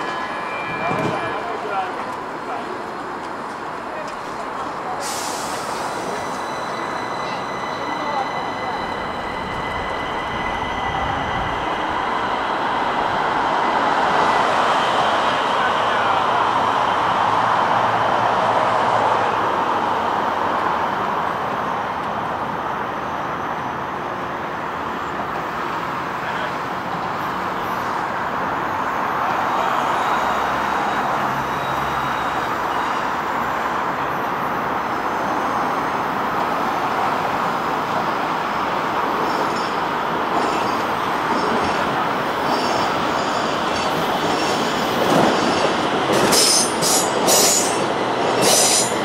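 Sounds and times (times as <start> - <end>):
road traffic noise: 0.0 - 49.0.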